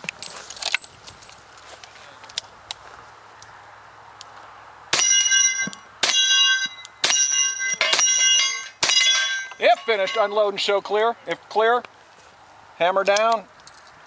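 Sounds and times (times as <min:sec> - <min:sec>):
ring of hit steel plate: 0:05.0 - 0:10.4.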